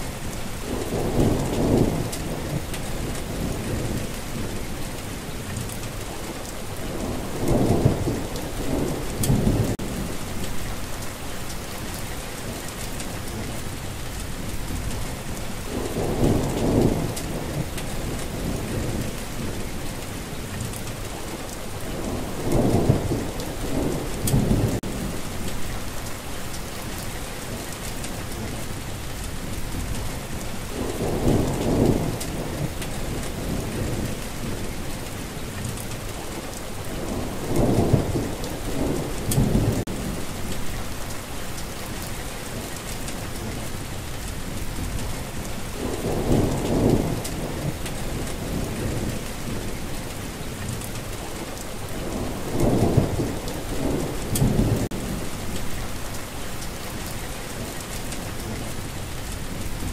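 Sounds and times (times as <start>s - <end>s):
steady rain falling: 0.0s - 59.9s
thunder rolling: 51.9s - 56.1s.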